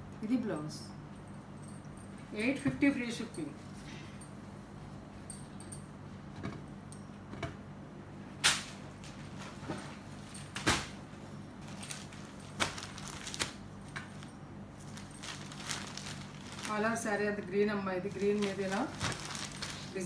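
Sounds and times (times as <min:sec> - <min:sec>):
steady low hum: 0:00.0 - 0:20.0
fabric rustling: 0:11.6 - 0:17.4, 0:18.0 - 0:20.0.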